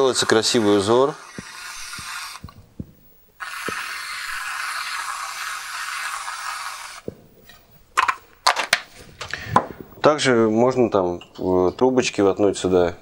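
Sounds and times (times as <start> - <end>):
aerosol can hissing: 0.0 - 2.6, 3.4 - 7.1.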